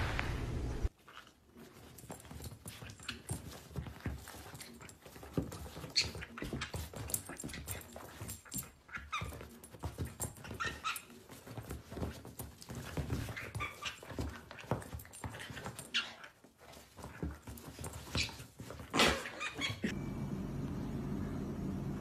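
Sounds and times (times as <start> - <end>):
steady low hum: 19.9 - 22.0.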